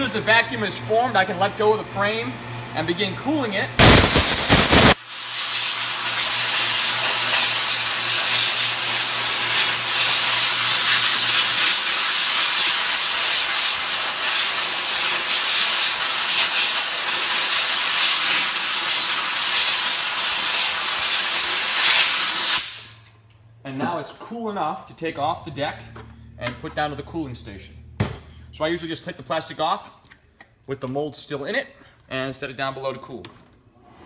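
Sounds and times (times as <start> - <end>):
air blow gun hissing: 3.8 - 23.0.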